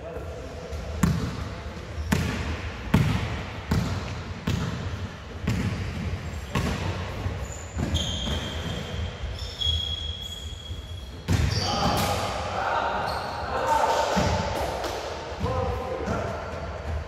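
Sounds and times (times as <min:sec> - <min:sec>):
basketball bouncing on floor: 0:01.0 - 0:01.4, 0:02.1 - 0:06.9
high steady squeaking tone: 0:07.4 - 0:11.7.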